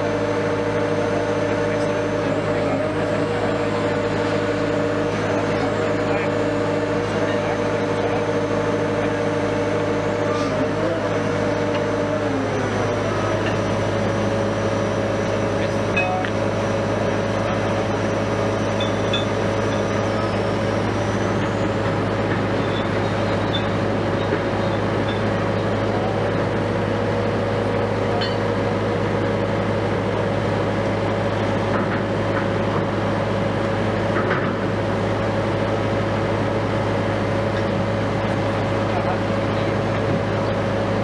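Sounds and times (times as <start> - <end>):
diesel engine droning: 0.0 - 41.0.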